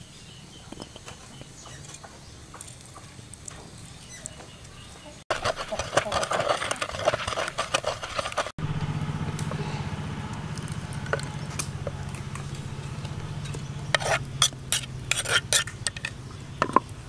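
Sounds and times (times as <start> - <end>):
scraping clay mortar: 5.3 - 8.6, 10.6 - 16.9
steady low hum: 8.6 - 17.0.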